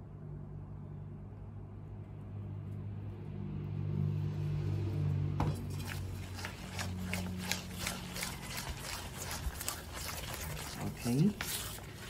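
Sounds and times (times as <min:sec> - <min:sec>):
low steady hum: 0:00.0 - 0:12.0
spatula scraping mixing bowl: 0:05.4 - 0:12.0.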